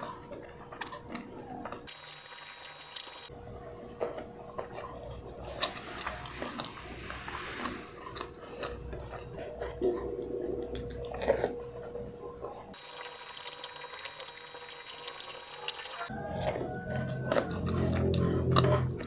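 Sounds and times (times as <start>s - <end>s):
chewing and lip smacking: 13.2s - 19.0s.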